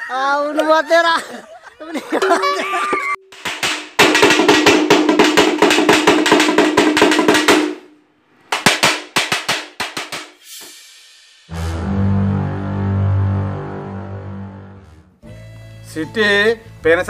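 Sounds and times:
rapid drumming over a held tone: 0:02.2 - 0:07.8.

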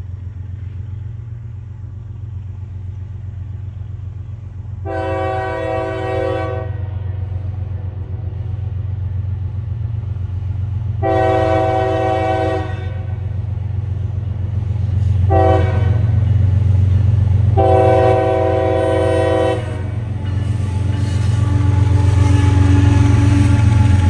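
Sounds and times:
locomotive engine drone: 0:00.0 - 0:24.0
train air horn blasts: 0:04.8 - 0:07.9, 0:11.0 - 0:13.3, 0:15.2 - 0:16.4, 0:17.4 - 0:24.0.

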